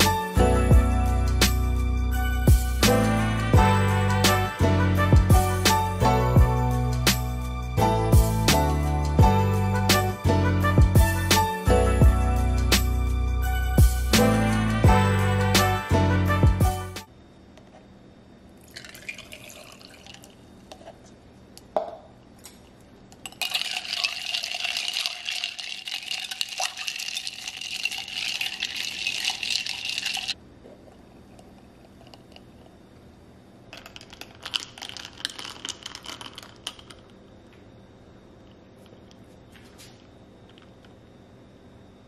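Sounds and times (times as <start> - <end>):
liquid pouring over ice: 18.6 - 20.4, 23.2 - 30.4, 33.8 - 37.0
ice and metal straw clinking: 18.7 - 20.4, 23.2 - 30.4, 33.8 - 37.0.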